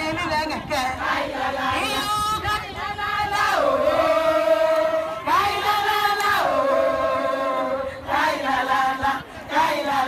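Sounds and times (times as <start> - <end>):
women chanting: 0.7 - 10.0.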